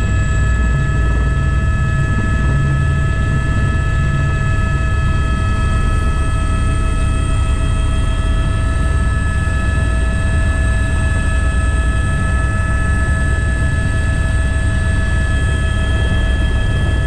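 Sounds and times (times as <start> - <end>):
helicopter rotor rumble: 0.0 - 17.0
helicopter turbine whine: 0.0 - 17.0.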